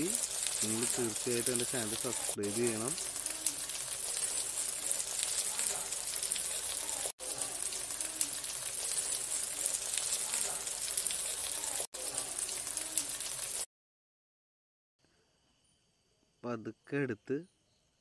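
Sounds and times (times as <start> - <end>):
fish sizzling in oil: 0.0 - 13.7.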